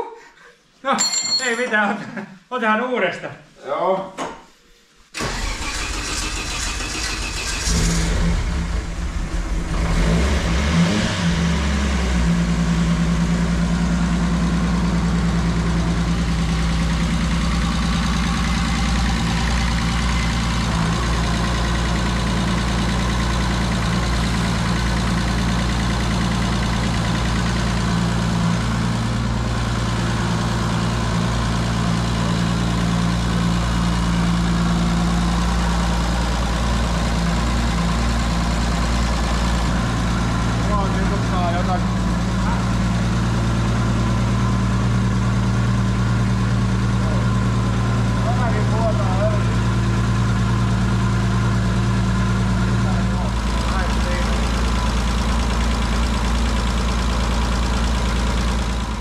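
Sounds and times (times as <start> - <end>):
starter motor cranking: 5.2 - 8.4
race car engine revving and idling: 6.1 - 59.0.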